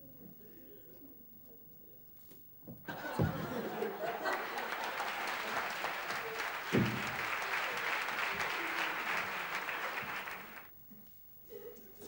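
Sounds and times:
audience applauding: 2.9 - 10.7.

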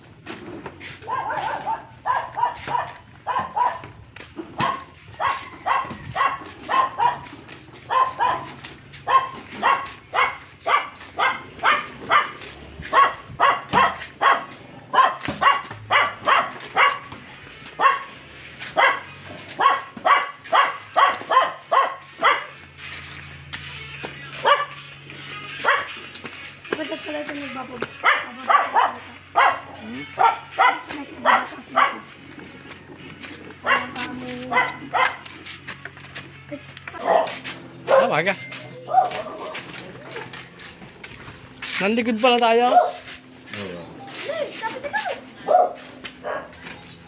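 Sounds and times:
dog barking: 0.9 - 4.0, 4.6 - 17.2, 17.8 - 22.6, 24.4 - 24.8, 25.6 - 26.0, 28.0 - 32.2, 33.6 - 35.3, 37.0 - 38.2, 38.9 - 39.7, 42.7 - 43.1, 45.4 - 46.7.

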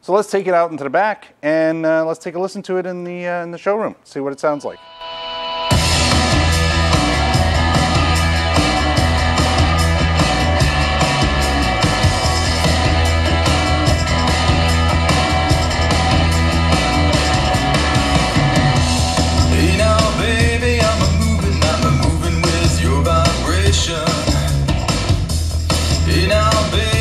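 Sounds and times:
bass-heavy music with drum beat: 5.7 - 27.0.

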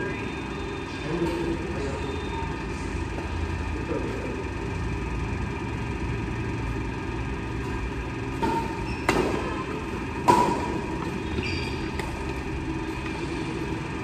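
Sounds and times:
badminton racket hitting shuttlecock: 8.3 - 11.2.

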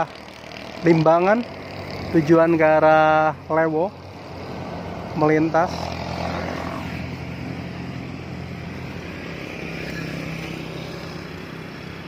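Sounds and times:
car approaching: 0.0 - 12.0
motorcycles passing: 0.0 - 12.0.

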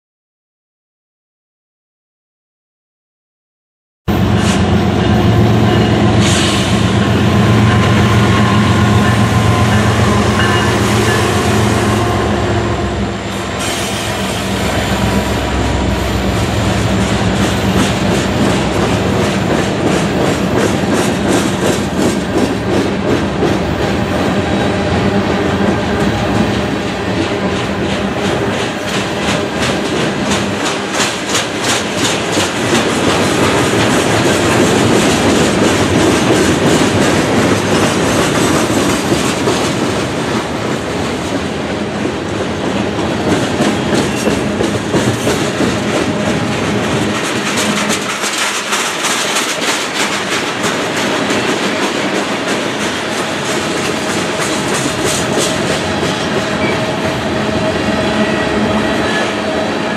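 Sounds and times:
freight train wheels rumbling: 4.1 - 59.9
wheels clacking over rail joints: 25.6 - 59.6.

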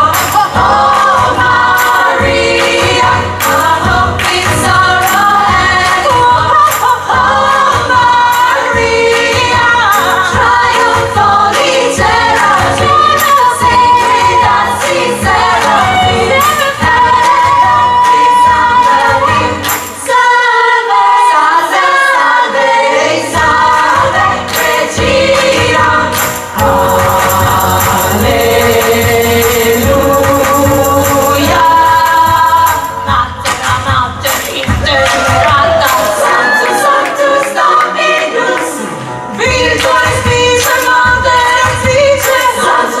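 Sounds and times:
women's chorus singing: 0.0 - 43.0
live band playing: 23.4 - 36.1.

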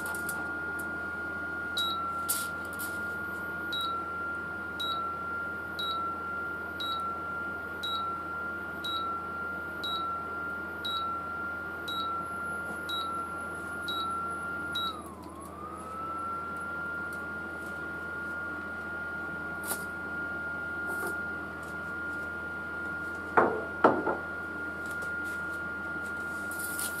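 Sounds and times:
cooling fan whine: 0.0 - 27.0
short beeps from control panel: 1.8 - 2.1, 3.7 - 4.0, 4.8 - 5.2, 5.8 - 6.2, 6.8 - 7.2, 7.8 - 8.2, 8.8 - 9.2, 9.8 - 10.2, 10.8 - 11.2, 11.9 - 12.3, 12.9 - 13.2, 13.8 - 15.0.

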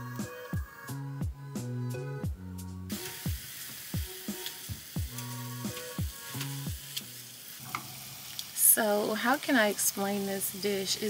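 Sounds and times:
background music with steady beat: 0.0 - 8.2
meat sizzling in a skillet: 2.9 - 11.0.

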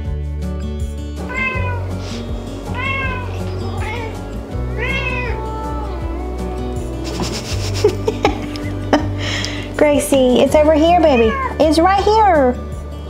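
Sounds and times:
background music: 0.0 - 13.0
cat meowing: 1.2 - 2.0, 2.6 - 6.0, 10.9 - 11.6.

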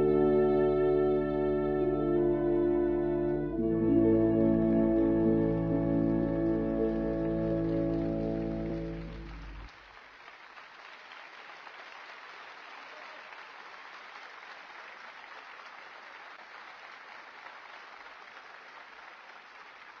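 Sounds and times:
musical chord: 0.0 - 9.7
audience applauding: 6.0 - 20.0.

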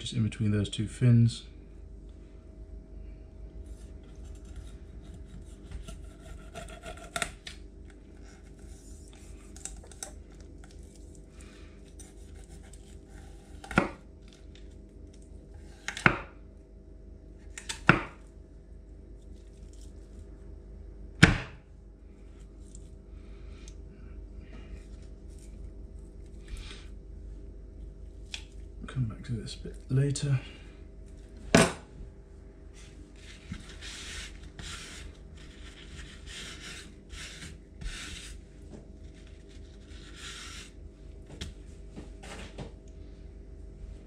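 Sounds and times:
steady background hum: 0.0 - 44.0
knife chopping on wooden board: 13.4 - 14.0, 17.8 - 18.2, 21.2 - 21.6.

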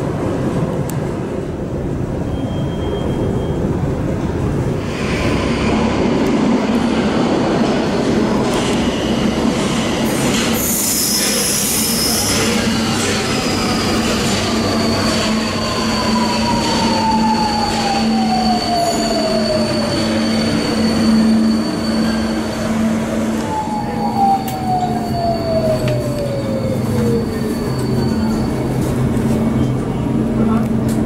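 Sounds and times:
metro train braking: 0.0 - 31.0
high brake squeal: 2.2 - 3.8, 10.1 - 29.7.

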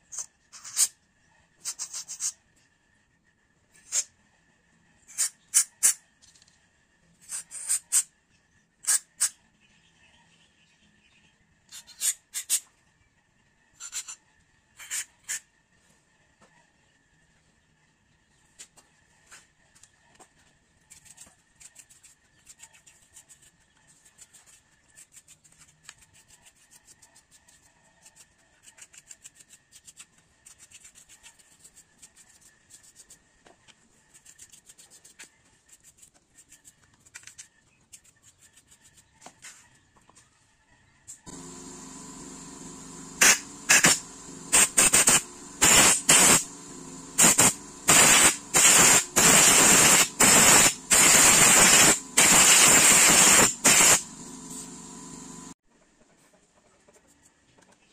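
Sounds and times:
paintbrush scratching: 20.9 - 33.3, 33.9 - 39.7, 43.2 - 54.8
loud hissing air blasts: 41.3 - 54.9
steady hum with hiss: 41.3 - 55.6.

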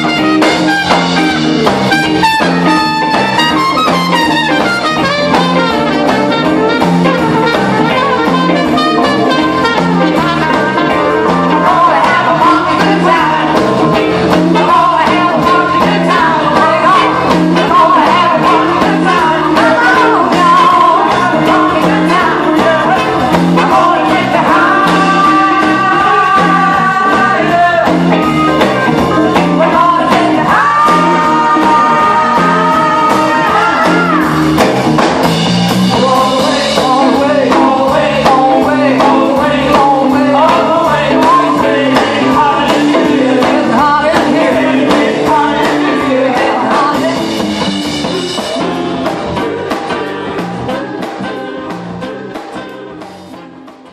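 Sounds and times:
drums: 0.0 - 53.9
guitar: 0.0 - 53.9
soul band playing: 0.0 - 53.9
singers' voices: 9.2 - 34.6, 35.9 - 47.4.

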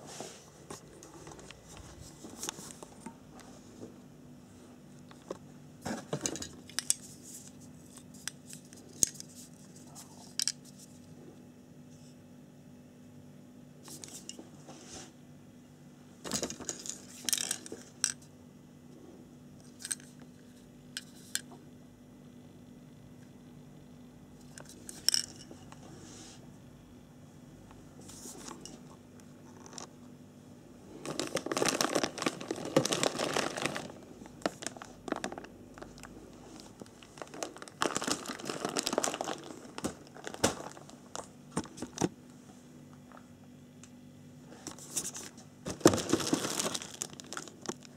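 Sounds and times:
plastic bags crinkling: 30.9 - 42.0, 45.1 - 47.9.

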